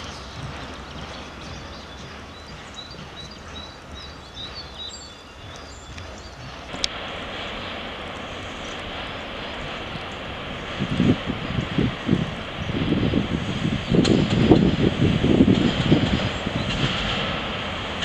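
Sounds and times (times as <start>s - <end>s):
small birds chirping: 0.0s - 6.8s
steady rushing noise: 0.0s - 18.0s.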